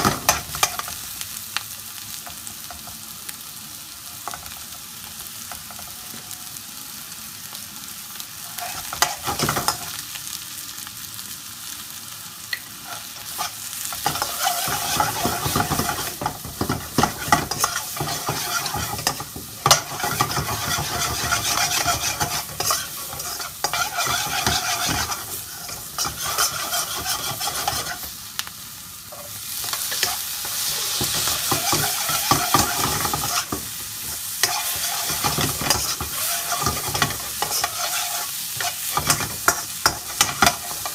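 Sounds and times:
vegetables sizzling in a wok: 0.0 - 40.9
metal spoon scraping a wok: 12.8 - 28.1, 29.1 - 33.6, 34.4 - 40.9.

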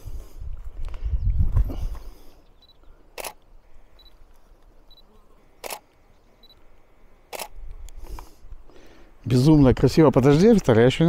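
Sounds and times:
camera shutter clicks: 3.2 - 3.5, 5.6 - 5.9, 7.3 - 7.6.

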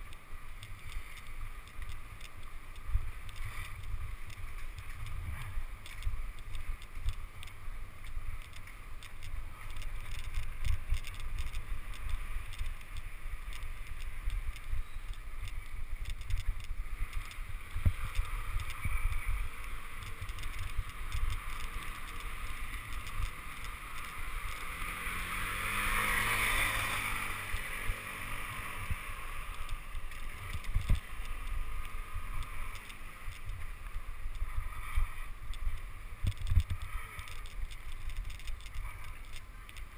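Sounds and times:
bicycle rattling over cobblestones: 0.0 - 39.9
passing vehicle engine: 23.6 - 29.6.

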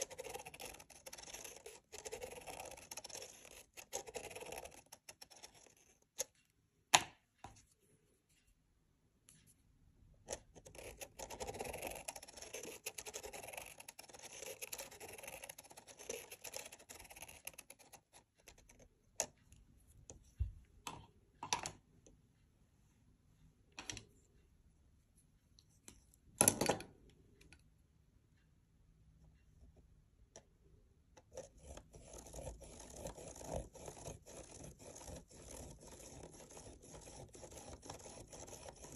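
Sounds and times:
felt-tip pen scratching on paper: 0.0 - 6.3, 10.3 - 18.8, 31.3 - 38.9.

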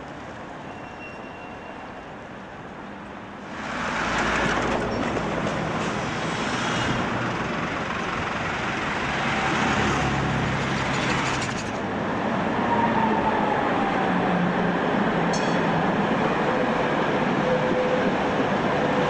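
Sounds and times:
vehicles passing close by: 1.8 - 19.0.

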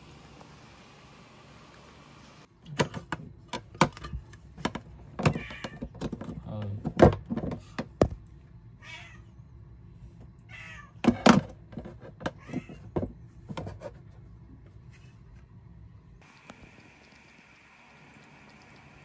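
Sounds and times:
plastic parts clunking and clicking: 2.7 - 8.2
cat meowing: 5.3 - 5.8, 8.8 - 9.3, 10.4 - 11.0.

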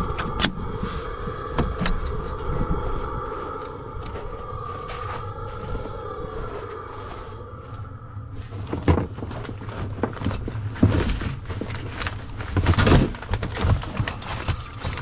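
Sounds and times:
low steady hum: 0.0 - 15.0
rubber cords rustling: 8.3 - 15.0.

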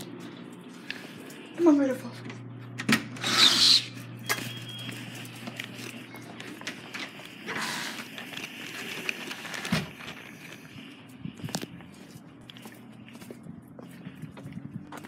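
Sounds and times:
steady low hum: 0.0 - 15.0
footsteps on concrete: 11.0 - 15.0.

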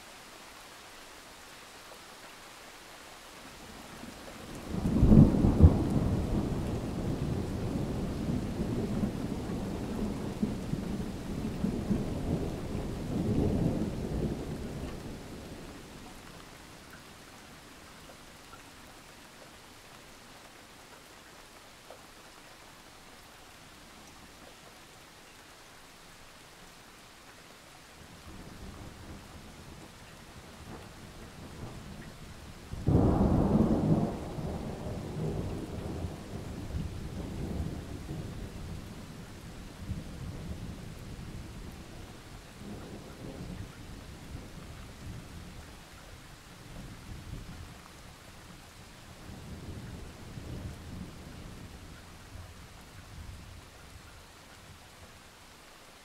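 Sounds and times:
steady rain: 0.0 - 56.0
thunder rumbling: 4.5 - 15.7, 32.7 - 39.0.

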